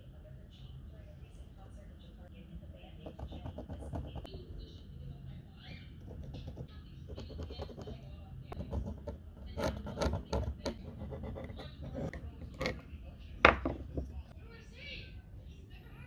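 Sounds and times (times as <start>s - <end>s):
pencil scratching on wood: 3.0s - 4.3s, 6.0s - 8.0s, 8.6s - 12.8s
tools knocking on wooden bench: 13.4s - 14.1s.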